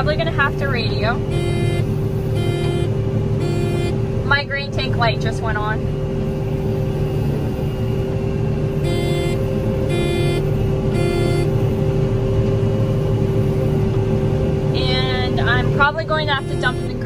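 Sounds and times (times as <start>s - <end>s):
combine harvester running: 0.0s - 17.0s
warning beeper beeping: 1.2s - 4.0s, 8.8s - 11.7s, 16.2s - 17.0s.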